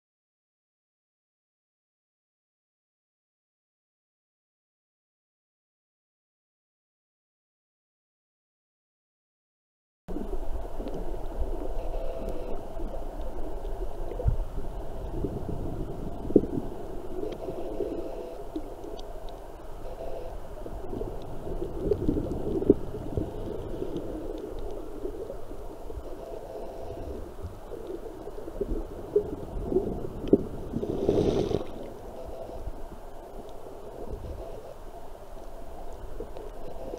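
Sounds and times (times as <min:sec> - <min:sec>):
muffled underwater rumble: 0:10.1 - 0:36.9.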